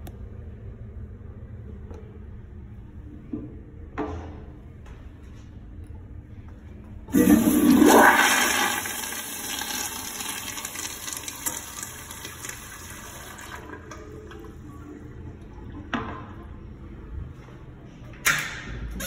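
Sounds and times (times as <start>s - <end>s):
toilet flushing: 7.1s - 16.5s.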